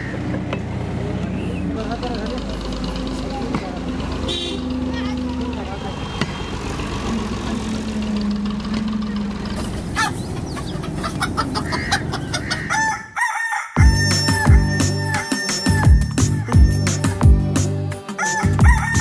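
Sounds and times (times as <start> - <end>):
chickens clucking: 8.7 - 13.5
rooster crowing: 11.3 - 15.8, 18.2 - 19.0
music with heavy bass beat: 13.8 - 19.0.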